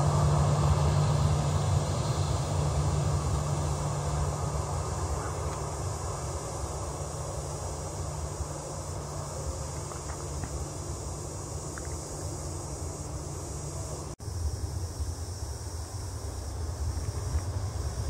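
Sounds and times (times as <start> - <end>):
distant jet engine rumble: 0.0 - 18.0
insects buzzing: 0.0 - 18.0.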